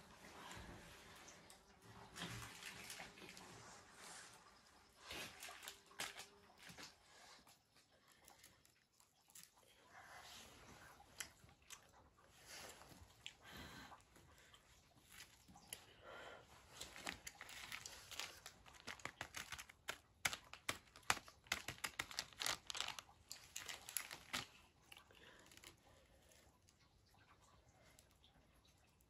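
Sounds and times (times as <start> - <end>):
plastic snack packet crinkling: 16.7 - 26.5.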